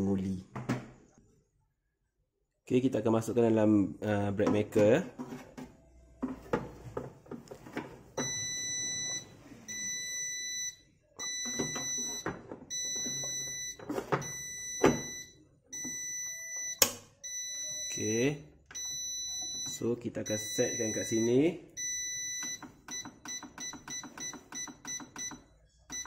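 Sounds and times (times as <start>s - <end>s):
electronic alarm beeping: 8.2s - 26.0s.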